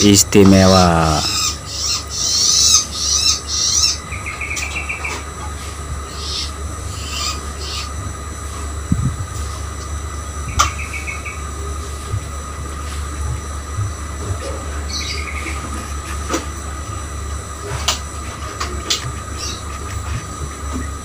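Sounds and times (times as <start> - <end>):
steady low hum: 0.0 - 21.0
bird high scratchy calls: 1.2 - 5.2, 6.1 - 8.0, 19.2 - 20.3.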